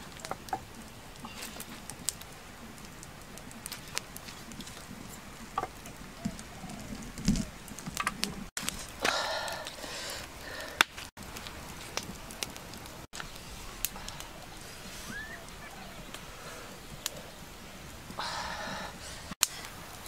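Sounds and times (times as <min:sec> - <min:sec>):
faint bird chirps: 0:14.5 - 0:16.3.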